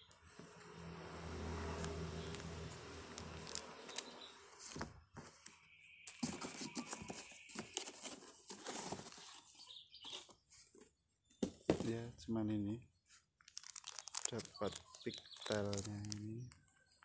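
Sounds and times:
cardboard box scraping and rustling: 6.2s - 10.8s.

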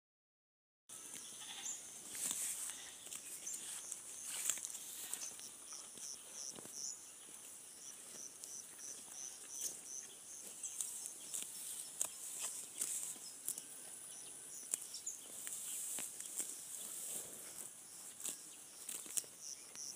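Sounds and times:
cow tearing grass: 2.0s - 6.8s, 7.4s - 14.0s, 14.6s - 19.8s.

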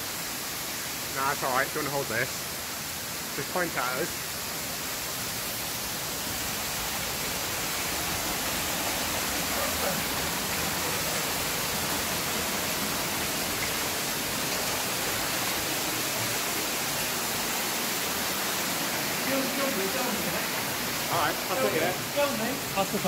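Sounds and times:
rush of falling water: 0.0s - 23.0s.

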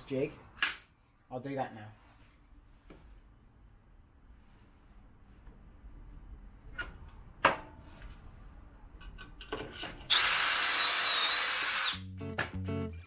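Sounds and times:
cordless drill whining: 10.1s - 12.0s.

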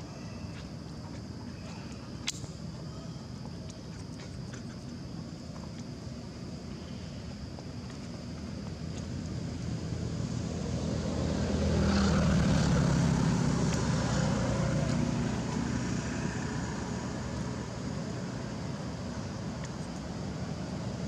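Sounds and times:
engine passing by: 9.4s - 19.5s.

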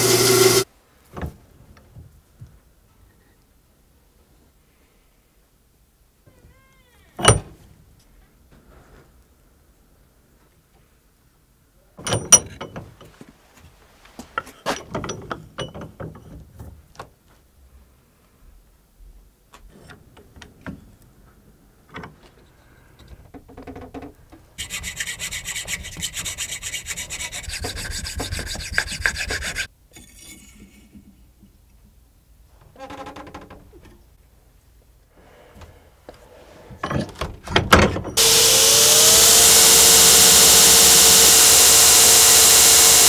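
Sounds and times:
hand tool rasping wood: 0.0s - 0.7s, 24.6s - 29.7s, 38.2s - 43.0s.

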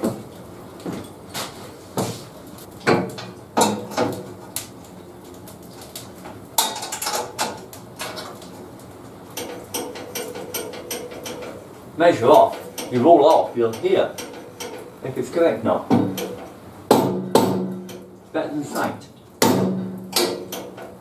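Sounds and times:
metallic knocks and clatter of tools: 6.6s - 8.3s.

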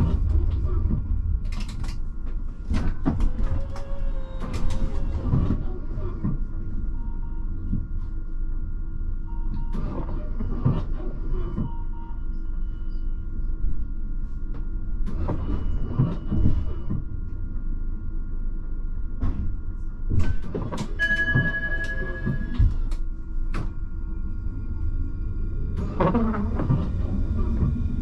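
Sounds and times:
tram wheels rumbling on rails: 0.0s - 6.8s, 19.1s - 28.0s.

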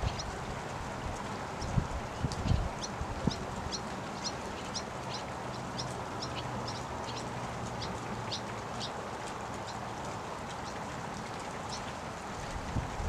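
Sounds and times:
rain on water: 0.0s - 13.0s
seabirds calling: 2.5s - 9.9s.

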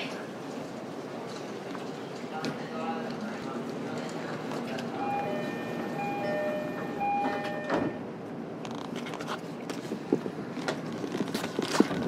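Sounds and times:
two-tone door chime: 5.0s - 8.1s
sliding doors knocking shut: 6.7s - 8.0s.

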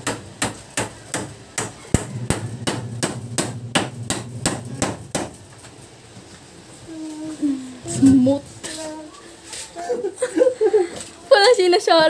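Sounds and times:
hammer pounding on wood: 0.0s - 5.6s.

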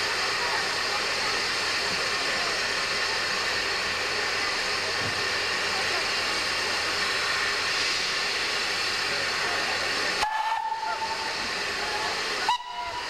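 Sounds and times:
steam locomotive hissing: 0.0s - 13.0s
steam whistle: 10.2s - 13.0s.

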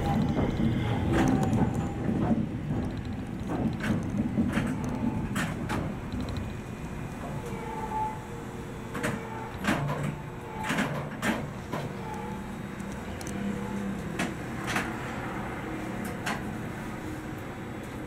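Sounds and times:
knocks and clunks: 0.0s - 6.5s
electric train hum: 0.0s - 18.0s.

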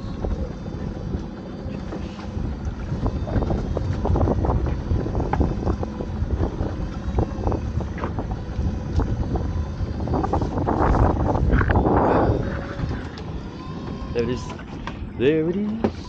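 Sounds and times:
wind buffeting microphone: 0.0s - 15.3s
heavy low rumble: 0.0s - 16.0s.

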